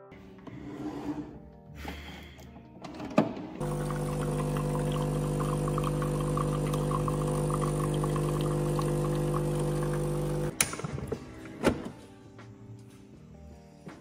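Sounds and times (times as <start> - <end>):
coffee pouring into a mug: 3.6 - 10.5
coffee machine pump humming: 3.6 - 10.6.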